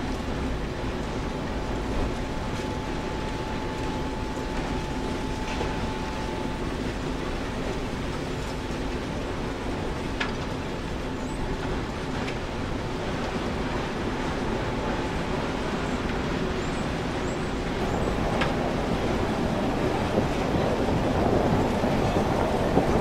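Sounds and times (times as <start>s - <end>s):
low rumble of moving vehicle: 0.0s - 23.0s
faint steady tone: 1.3s - 9.3s.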